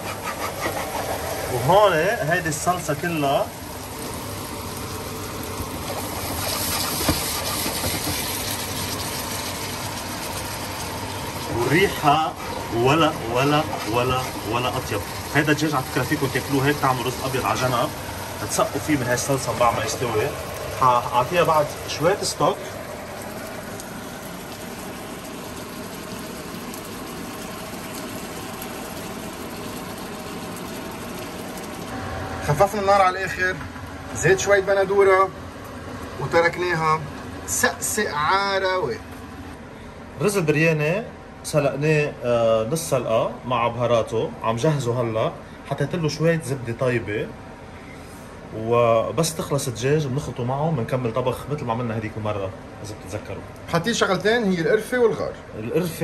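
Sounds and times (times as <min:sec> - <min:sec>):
sauce sizzling in a pan: 0:02.9 - 0:32.0.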